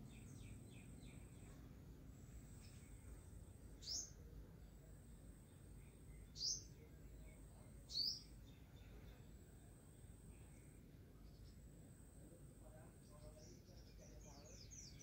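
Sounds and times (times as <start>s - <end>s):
small bird chirps: 0.0s - 4.8s, 5.4s - 11.7s, 12.8s - 15.0s
faint low background hum: 0.0s - 15.0s.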